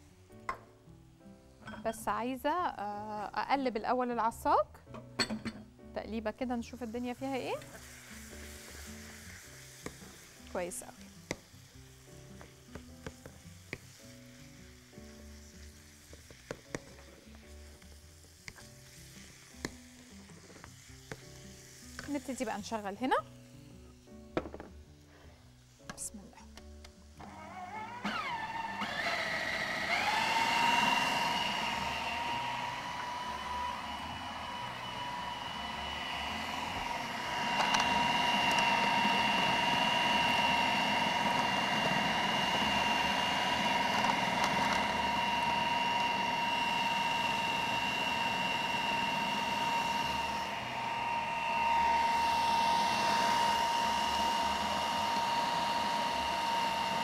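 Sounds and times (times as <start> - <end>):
food processor motor whining: 27.2 - 57.0.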